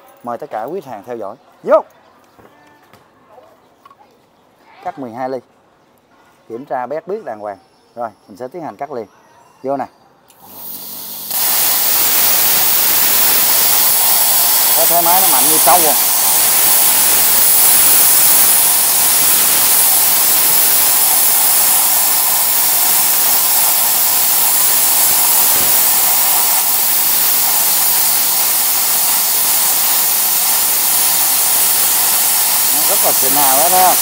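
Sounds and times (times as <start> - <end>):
plasma cutter hissing: 10.4 - 34.0.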